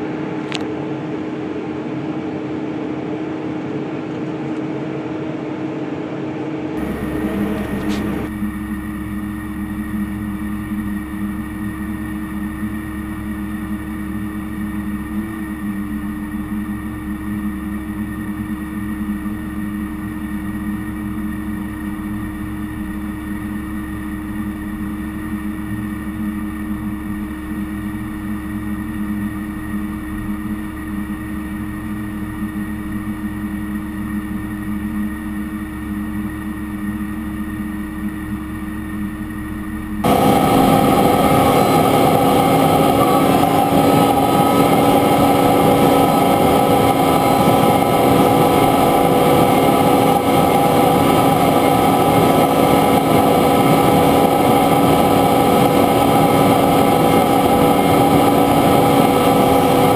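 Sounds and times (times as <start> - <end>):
tractor diesel engine running: 6.8 - 9.2, 40.0 - 59.9
engine and drivetrain sound: 6.8 - 23.0, 40.0 - 59.9.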